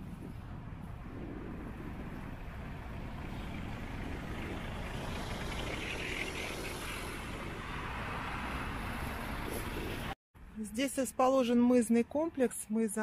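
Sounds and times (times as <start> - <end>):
wind buffeting microphone: 0.0 - 10.1
tyre and road noise: 0.0 - 13.0.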